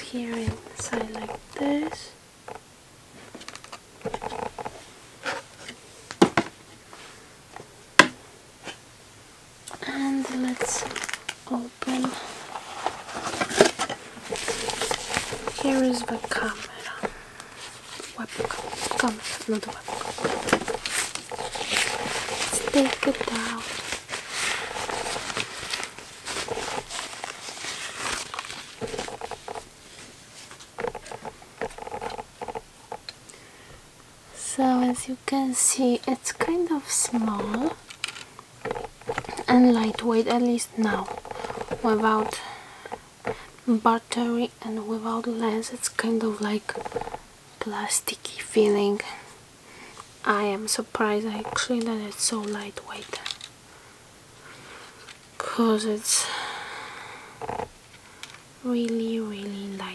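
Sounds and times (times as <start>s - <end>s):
packaging clicks and rustles: 0.1s - 2.6s, 3.3s - 6.6s, 9.7s - 33.1s, 36.1s - 43.6s, 46.0s - 47.3s, 51.2s - 53.6s.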